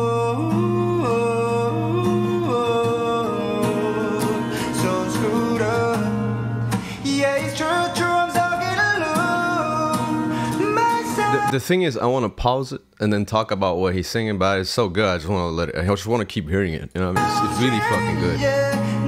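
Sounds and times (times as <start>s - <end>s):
acoustic guitar plucking: 0.0s - 11.6s, 17.1s - 19.0s
man singing slow song: 0.0s - 11.6s, 17.1s - 19.0s.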